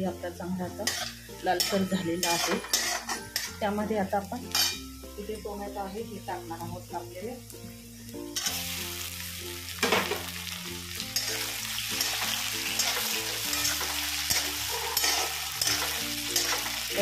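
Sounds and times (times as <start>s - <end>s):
food sizzling in oil: 0.0s - 17.0s
spatula scraping a pan: 0.8s - 3.6s, 4.5s - 4.9s, 11.1s - 16.9s.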